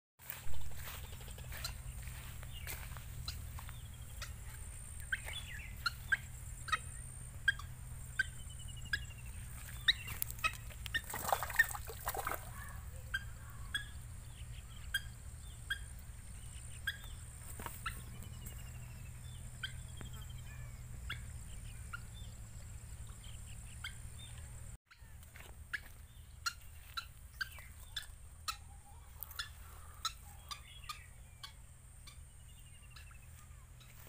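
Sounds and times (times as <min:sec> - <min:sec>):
sharp bird calls: 0:00.2 - 0:34.0
water splashing from flapping bird: 0:10.2 - 0:12.6.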